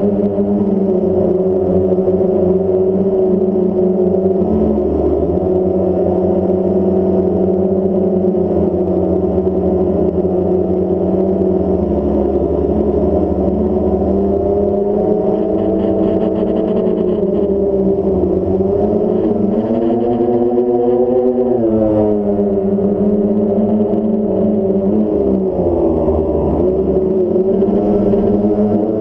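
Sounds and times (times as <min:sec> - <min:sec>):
low bass drone: 0:00.0 - 0:29.0
sustained synthesizer chords: 0:00.0 - 0:29.0.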